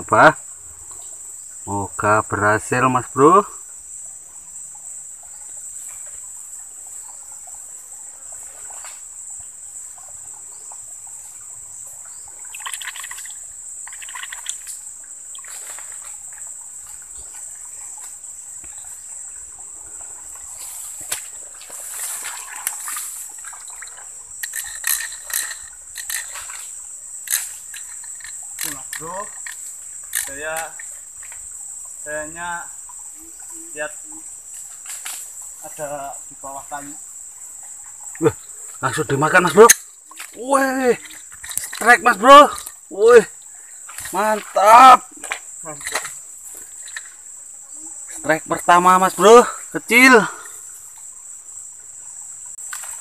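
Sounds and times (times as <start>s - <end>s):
crickets droning: 0.0s - 53.0s
small water splashes: 4.0s - 53.0s
grass rustling: 20.2s - 31.5s, 34.4s - 35.8s, 37.6s - 49.9s.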